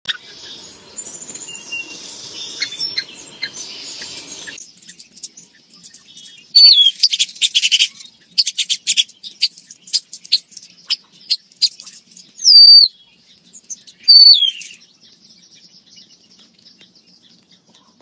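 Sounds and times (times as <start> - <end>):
loud bird call: 0.1 - 4.6, 12.4 - 13.0, 14.0 - 14.8
background noise: 0.1 - 18.0
small songbirds chirping: 0.1 - 18.0.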